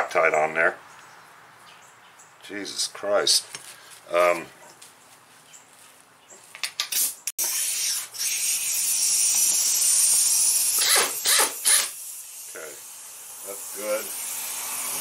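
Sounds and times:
air tool hissing: 6.9 - 15.0.

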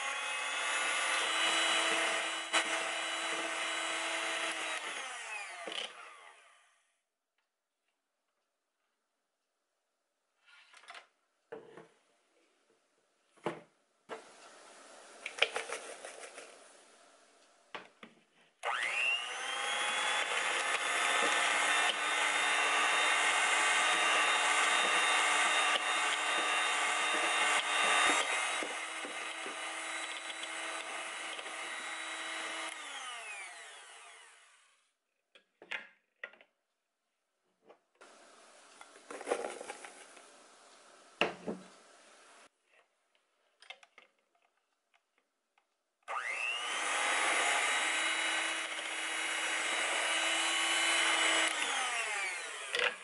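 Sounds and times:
electric hand mixer whirring: 0.0 - 6.6, 18.6 - 34.8, 46.1 - 53.0.

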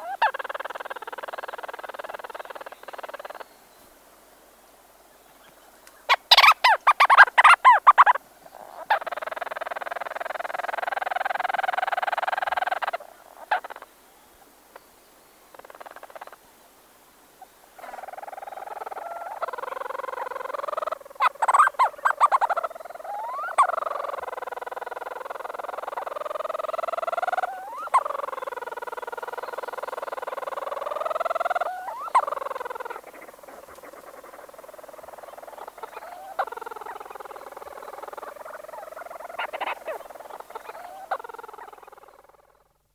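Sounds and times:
sharp chattering calls: 6.1 - 13.8, 17.9 - 42.6
petrels purring churrs: 17.8 - 42.7.

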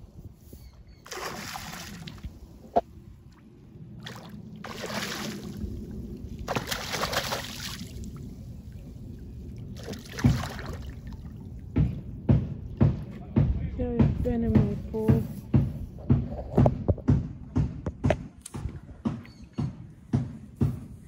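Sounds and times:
water splashing from thrashing fish: 1.0 - 2.4, 4.0 - 8.2, 9.7 - 11.4
low steady rumble: 1.4 - 17.8.

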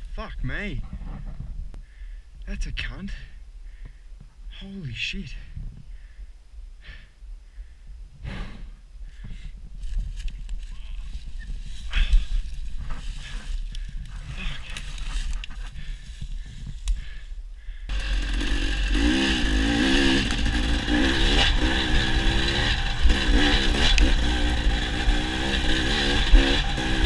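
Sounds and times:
dirt bike engine revving: 17.9 - 27.0.

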